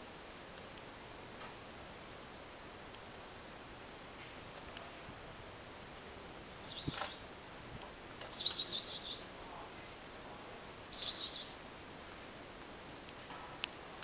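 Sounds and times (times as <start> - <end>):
small bird chirping: 6.6 - 7.3, 8.3 - 9.3, 10.9 - 11.6.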